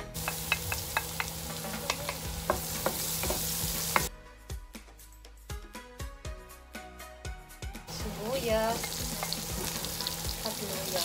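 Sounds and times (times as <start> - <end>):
faint background music: 0.0 - 11.0
garlic sizzling in hot oil: 0.1 - 4.1, 7.9 - 11.0.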